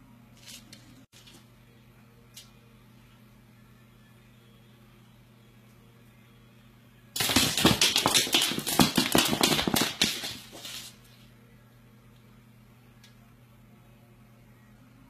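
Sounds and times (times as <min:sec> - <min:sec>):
claws scratching on wooden floor: 0:07.3 - 0:11.0.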